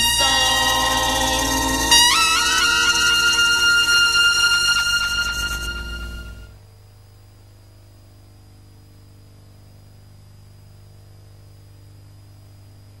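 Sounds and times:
high whine: 0.0 - 6.7
low hum: 0.0 - 7.6.

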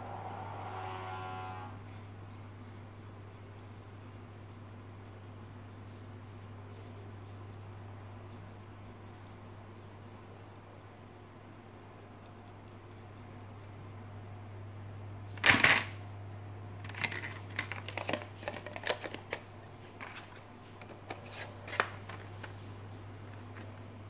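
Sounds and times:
plastic packaging crackling: 16.8 - 19.4.

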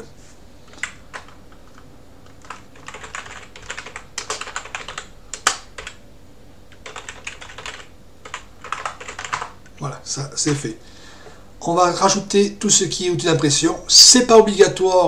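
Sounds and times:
typing on computer keyboard: 0.7 - 6.0, 6.7 - 9.6.

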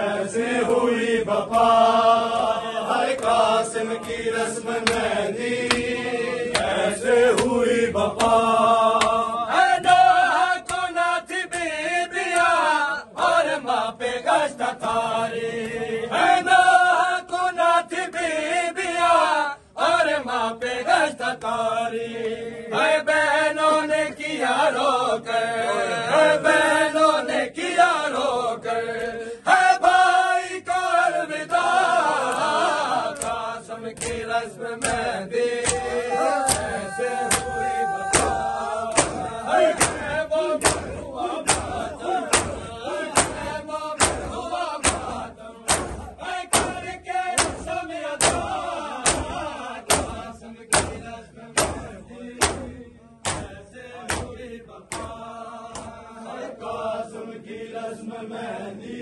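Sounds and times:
men chanting a lament: 0.0 - 59.0
hand slaps on chest: 4.0 - 8.4, 9.0 - 9.2, 10.6 - 10.9, 33.1 - 55.2, 55.8 - 56.0.

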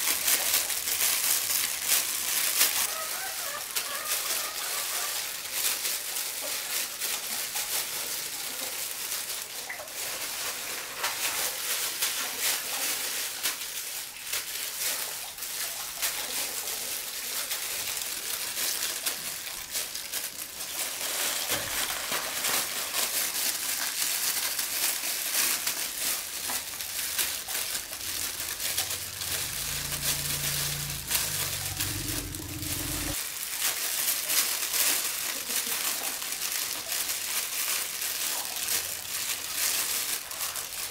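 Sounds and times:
plastic gloves crinkling: 0.0 - 40.9.

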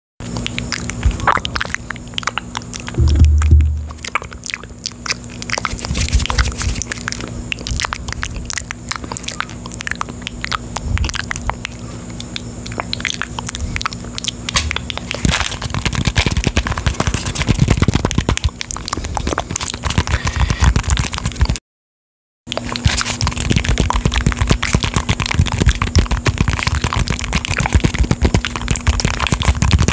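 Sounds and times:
fingertips tapping microphone grille: 2.9 - 4.2
plastic object knocking on microphone: 3.0 - 4.0.

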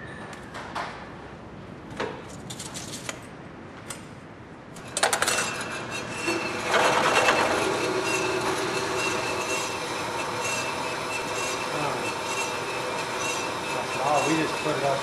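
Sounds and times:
bandsaw cutting steel: 4.8 - 15.0.

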